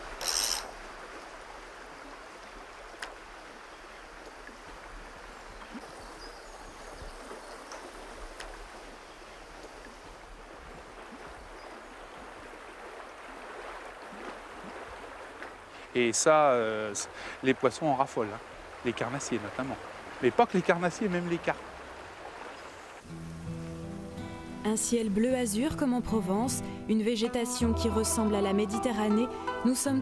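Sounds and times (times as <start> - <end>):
water rushing over rocks: 9.7 - 23.5.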